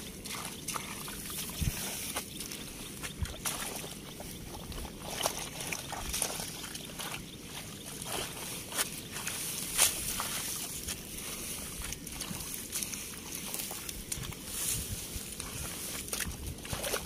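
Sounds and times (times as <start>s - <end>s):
small splashes: 0.0s - 10.8s, 15.4s - 17.0s
hands squelching in mud: 0.0s - 17.0s.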